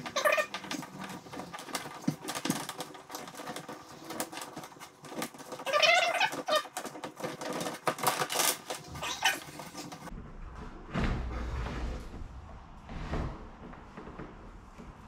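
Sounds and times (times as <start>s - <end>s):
cable clicking and rustling: 0.0s - 10.1s.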